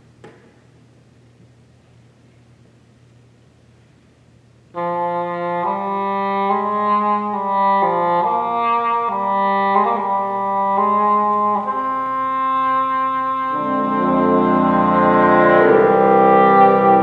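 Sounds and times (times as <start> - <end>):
wind ensemble playing held chords: 4.8 - 17.0.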